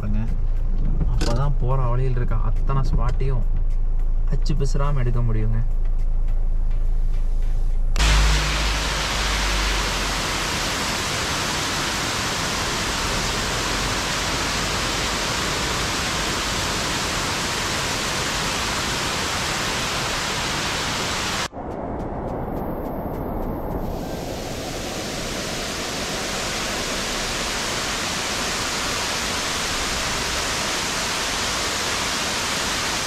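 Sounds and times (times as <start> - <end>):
waterfall rushing: 8.0 - 21.5, 23.8 - 33.0.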